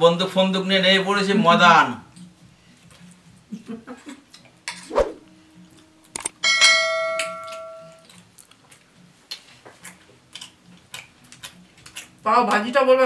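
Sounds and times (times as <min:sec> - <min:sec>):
bright bell ding: 0:06.4 - 0:07.9.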